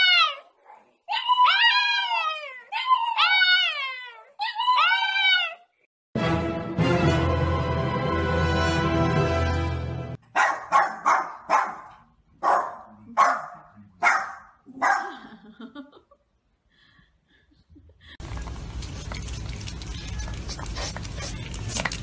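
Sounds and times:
small dog barking: 0:10.3 - 0:15.2.

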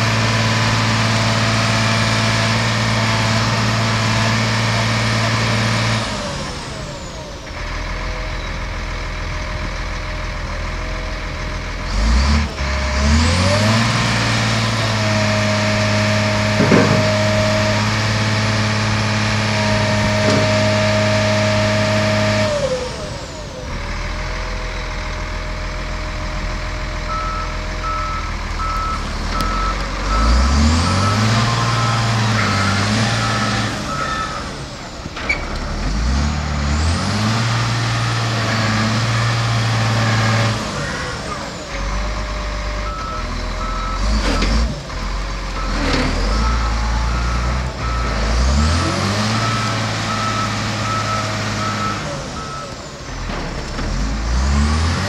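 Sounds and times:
diesel engine revving: 0:00.0 - 0:55.0
sharp knocks: 0:16.5 - 0:17.4
reversing alarm beeping: 0:27.1 - 0:34.7, 0:42.8 - 0:44.7, 0:45.6 - 0:52.9.

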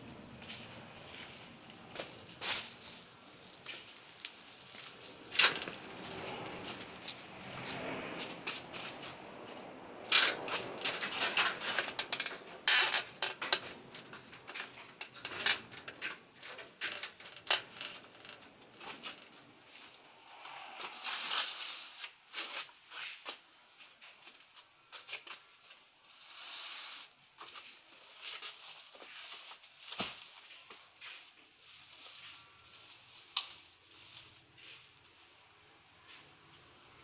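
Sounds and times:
tree branches rustling: 0:00.4 - 0:12.6, 0:17.6 - 0:23.2, 0:26.1 - 0:35.4.

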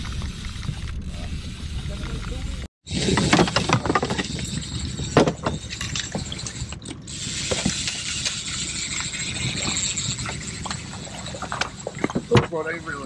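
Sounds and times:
fishing reel clicking: 0:04.2 - 0:12.0.

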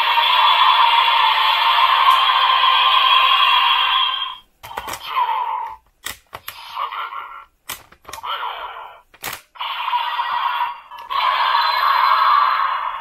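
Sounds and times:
sharp plastic clicks: 0:05.8 - 0:06.6, 0:07.6 - 0:08.3, 0:09.1 - 0:09.5
electronic toy scan sound effects: 0:09.6 - 0:13.0.

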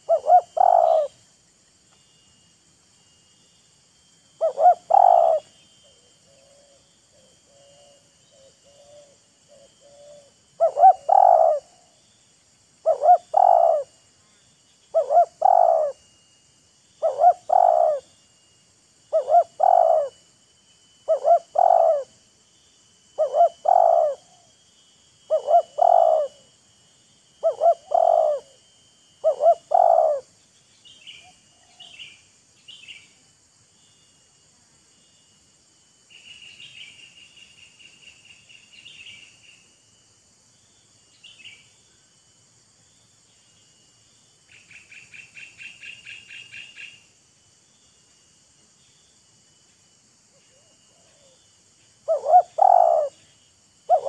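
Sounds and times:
dove cooing: 0:00.0 - 0:01.2, 0:04.4 - 0:11.9, 0:12.8 - 0:13.9, 0:14.9 - 0:16.0, 0:17.0 - 0:18.1, 0:19.1 - 0:20.2, 0:21.1 - 0:22.2, 0:23.2 - 0:24.5, 0:25.3 - 0:26.5, 0:27.4 - 0:28.6, 0:29.2 - 0:30.3, 0:52.0 - 0:53.2.

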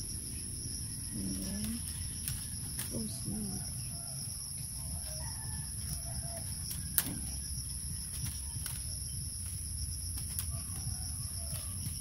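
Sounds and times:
high-pitched insect trilling: 0:00.0 - 0:12.0
bamboo strips clicking: 0:01.4 - 0:03.0, 0:05.8 - 0:07.4, 0:08.0 - 0:12.0.

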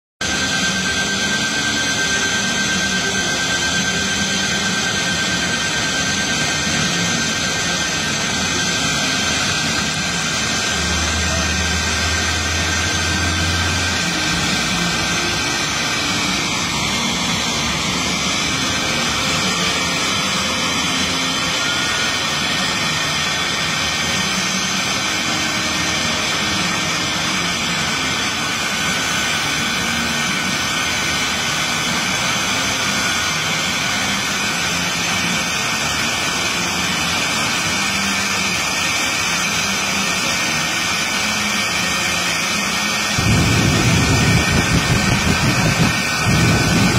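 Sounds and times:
jet engines roaring with turbine whine: 0:00.2 - 0:46.9.

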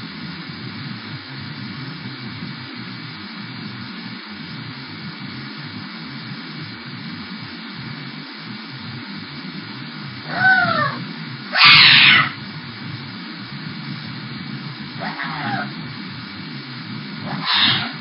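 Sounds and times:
microphone hiss: 0:00.0 - 0:18.0
cat harsh cry: 0:10.3 - 0:12.4, 0:15.0 - 0:15.7, 0:17.3 - 0:18.0
cat meowing: 0:10.3 - 0:12.4, 0:15.0 - 0:15.7, 0:17.3 - 0:18.0.

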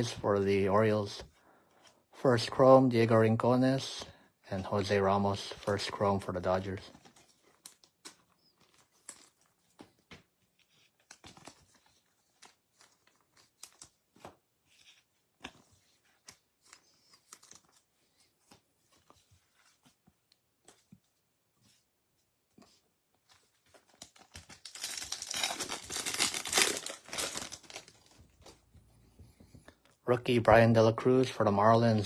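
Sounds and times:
trading cards rustling and clicking: 0:04.6 - 0:21.1, 0:22.6 - 0:30.0.

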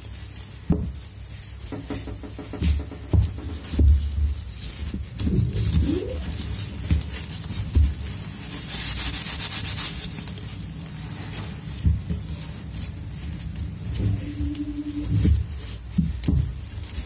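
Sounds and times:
foam sponges rubbing: 0:00.0 - 0:17.0.

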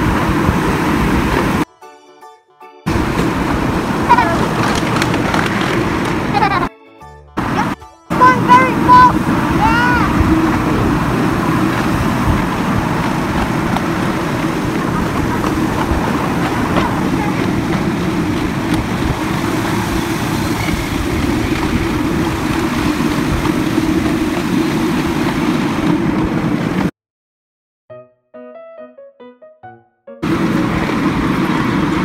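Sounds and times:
locomotive low hum: 0:00.0 - 0:01.7, 0:02.9 - 0:06.7, 0:07.4 - 0:26.9, 0:30.2 - 0:32.0
miniature train wheels rumbling: 0:02.9 - 0:06.7, 0:08.2 - 0:26.9.

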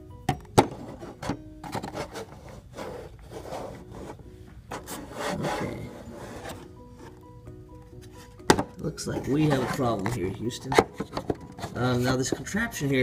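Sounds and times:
faint background music: 0:00.0 - 0:13.0
plastic tool scraping on turntable: 0:00.7 - 0:06.7, 0:09.2 - 0:12.5.

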